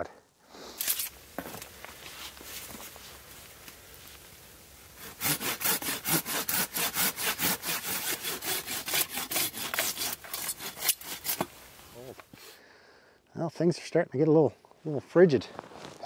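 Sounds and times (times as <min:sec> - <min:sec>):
pruning saw cutting branch: 0:00.8 - 0:01.2, 0:05.0 - 0:11.6.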